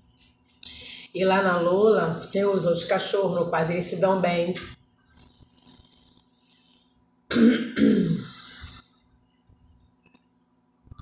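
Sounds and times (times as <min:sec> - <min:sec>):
woman coughing: 0:07.3 - 0:08.4.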